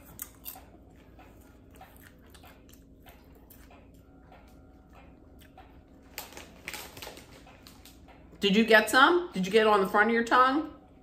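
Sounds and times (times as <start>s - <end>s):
chewing popcorn: 0.0s - 8.3s.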